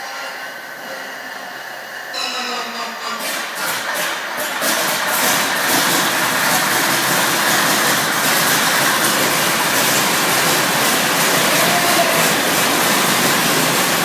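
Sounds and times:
biplane radial engine running: 0:03.0 - 0:14.0.

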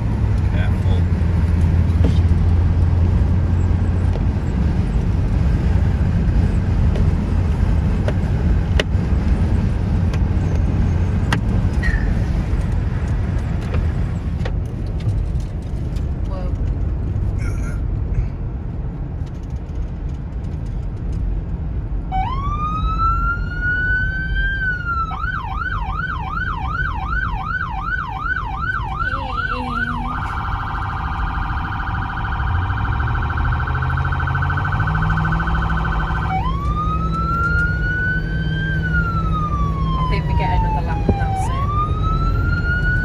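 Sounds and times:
engine and road rumble: 0:00.0 - 0:43.0
police siren: 0:22.1 - 0:43.0.

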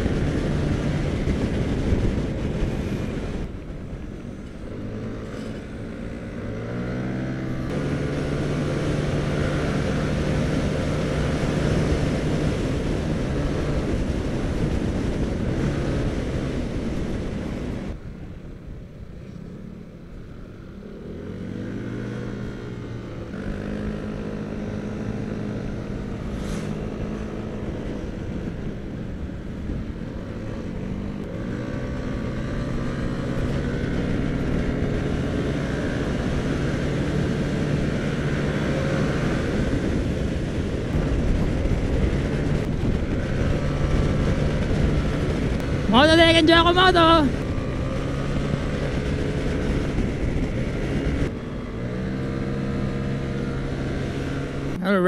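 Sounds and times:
scooter engine under throttle: 0:00.0 - 0:18.0, 0:20.7 - 0:55.0
wind rushing: 0:00.0 - 0:18.0, 0:21.2 - 0:54.8.

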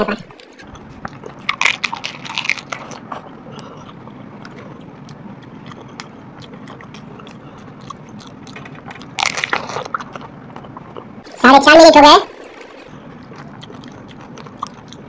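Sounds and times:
chewing: 0:00.3 - 0:11.3, 0:12.4 - 0:15.0
crisp shell crunching: 0:00.4 - 0:10.8.

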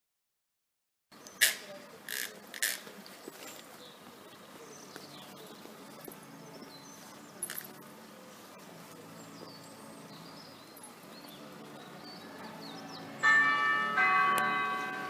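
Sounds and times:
electronic church bell strikes: 0:13.2 - 0:15.0.

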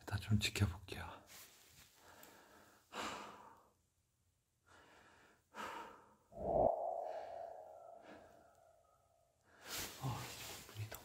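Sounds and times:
person breathing: 0:01.9 - 0:03.7, 0:04.6 - 0:10.0
mid-pitched hum-like tone: 0:06.4 - 0:08.6.

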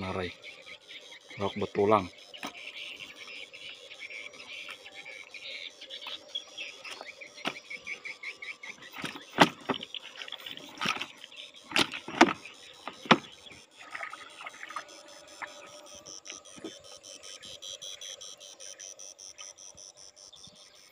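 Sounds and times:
fish flopping in plastic tub: 0:08.8 - 0:14.8
sharp slaps and knocks: 0:09.0 - 0:09.8, 0:11.7 - 0:13.3.

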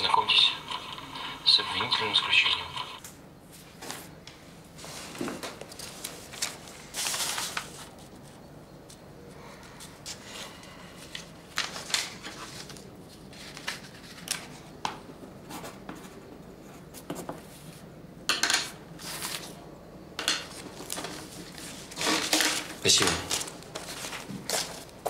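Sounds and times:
paper pages rustling: 0:04.8 - 0:09.0, 0:11.0 - 0:16.1, 0:19.0 - 0:19.6, 0:20.5 - 0:25.0.

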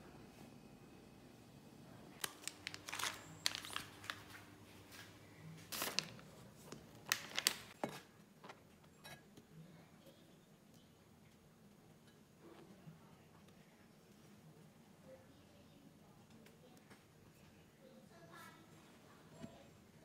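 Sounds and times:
plastic packaging crinkling: 0:02.2 - 0:05.1, 0:05.7 - 0:07.8.

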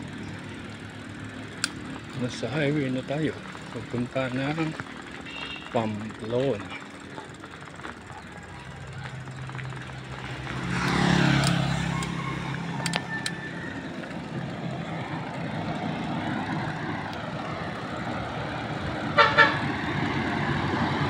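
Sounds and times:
vehicle engine speeding up: 0:00.0 - 0:21.0
wind and road noise: 0:00.0 - 0:21.0.

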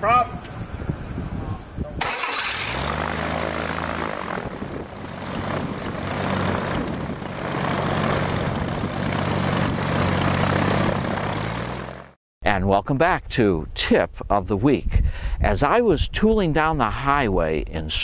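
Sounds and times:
propeller rush: 0:00.7 - 0:12.2
engine revving up and running: 0:02.0 - 0:12.2.

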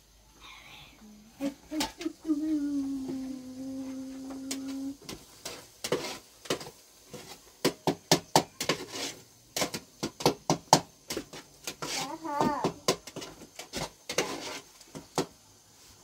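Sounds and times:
hard objects knocking and clattering: 0:05.8 - 0:08.9, 0:09.5 - 0:15.4.

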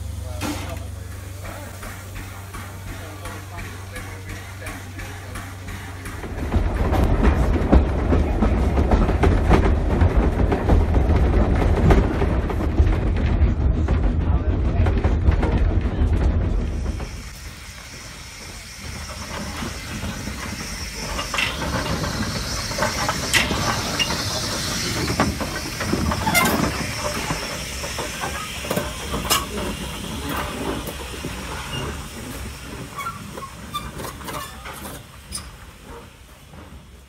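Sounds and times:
steam hissing: 0:00.0 - 0:12.8, 0:16.4 - 0:37.0.

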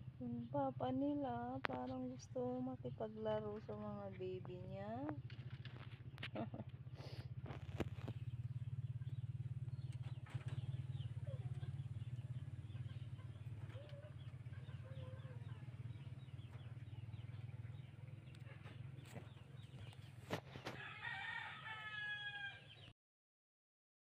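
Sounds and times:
steady low hum: 0:00.0 - 0:21.0
chickens clucking: 0:03.3 - 0:20.8
faint bird calls: 0:05.5 - 0:21.2.

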